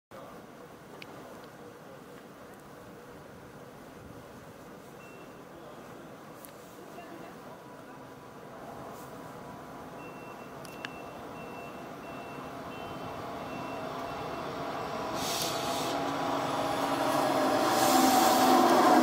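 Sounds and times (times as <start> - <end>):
repeated high beep: 5.0 - 5.4, 10.0 - 14.5
train rolling into station: 7.6 - 19.0
bursts of hiss: 15.1 - 16.1.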